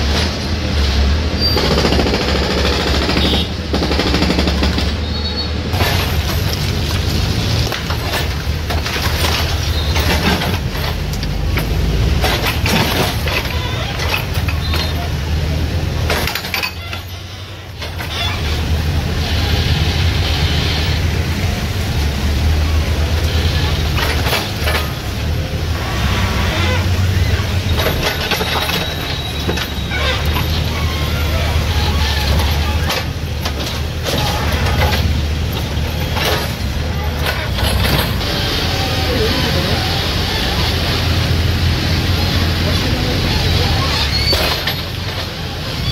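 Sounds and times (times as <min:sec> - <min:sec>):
clatter of knocks: 0:05.7 - 0:15.2, 0:16.0 - 0:18.7, 0:23.6 - 0:25.3, 0:27.5 - 0:38.3, 0:43.8 - 0:45.5
concrete and rubble crashing: 0:05.7 - 0:15.2, 0:16.0 - 0:17.2
diesel engine revving under load: 0:17.0 - 0:45.9.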